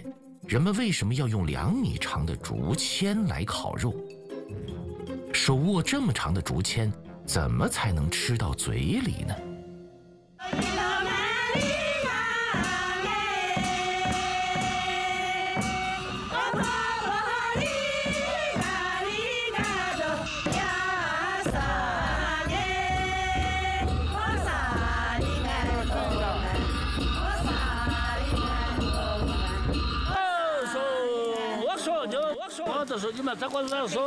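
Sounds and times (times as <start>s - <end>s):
steady drum beats: 10.4s - 30.2s
folk song singing: 10.4s - 34.0s
heavy deep drumming: 10.6s - 30.2s.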